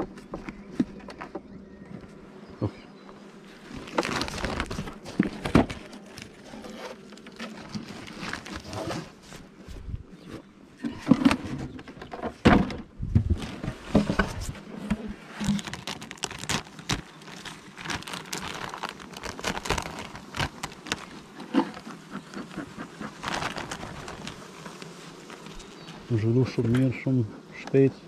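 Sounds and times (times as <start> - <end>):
plastic sheet crackling: 3.7 - 9.1, 15.3 - 21.8, 22.4 - 25.9.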